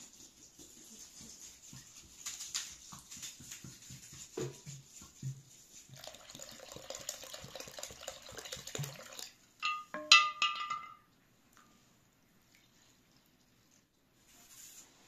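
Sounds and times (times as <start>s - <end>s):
water pouring into a bowl: 5.8s - 9.4s
ringing clinks: 9.6s - 11.0s.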